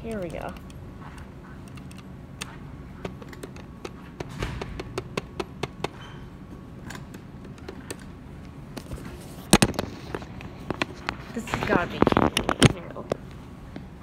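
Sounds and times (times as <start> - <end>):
loud knocks: 4.2 - 6.0.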